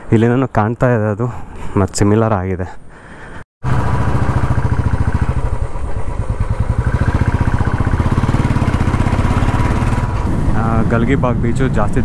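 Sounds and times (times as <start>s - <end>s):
motorcycle engine running: 3.6s - 11.2s.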